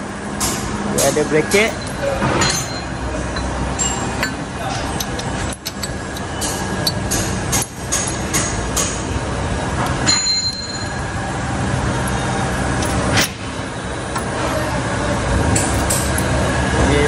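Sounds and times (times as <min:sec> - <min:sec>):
metal clinks and knocks: 0:01.0 - 0:09.0, 0:09.9 - 0:11.0, 0:15.6 - 0:16.4
high metallic ring: 0:01.5 - 0:04.5, 0:10.0 - 0:11.4.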